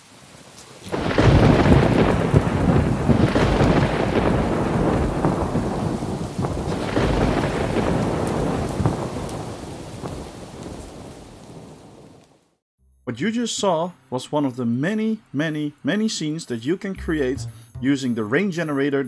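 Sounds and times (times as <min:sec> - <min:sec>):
heavy rain: 0:00.0 - 0:12.6
rolling thunder: 0:00.9 - 0:12.2.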